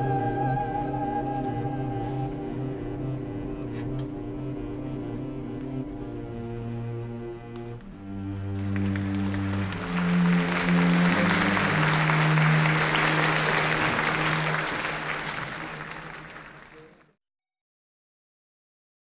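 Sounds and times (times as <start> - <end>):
orchestra holding low notes: 0.0 - 17.0
audience applauding: 7.9 - 17.2.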